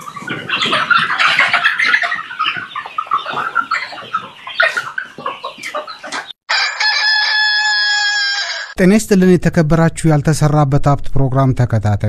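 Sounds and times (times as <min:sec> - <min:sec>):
chickens calling: 0:00.0 - 0:08.8.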